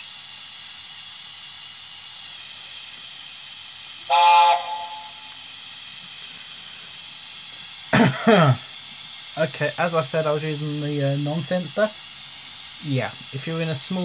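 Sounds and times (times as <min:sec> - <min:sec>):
steam hiss from speaker: 0:00.0 - 0:14.0
steam whistle blast: 0:04.1 - 0:05.4.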